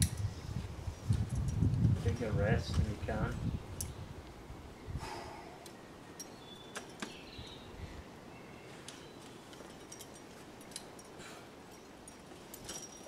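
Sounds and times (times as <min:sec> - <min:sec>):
metal climbing gear clinking: 0:01.1 - 0:01.8, 0:05.6 - 0:07.6, 0:08.6 - 0:13.0.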